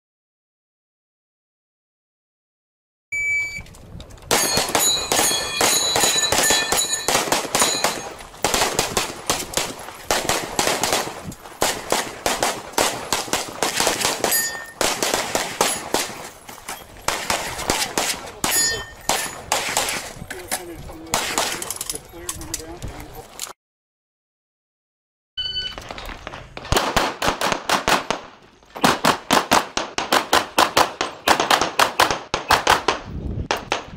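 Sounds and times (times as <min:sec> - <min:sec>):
shot timer beep: 0:03.1 - 0:03.7, 0:25.4 - 0:25.8
steel targets ringing: 0:04.3 - 0:08.3, 0:14.2 - 0:14.8, 0:18.4 - 0:19.5
rapid pistol shots: 0:04.3 - 0:16.3, 0:17.1 - 0:20.1, 0:21.1 - 0:21.7, 0:26.6 - 0:33.9.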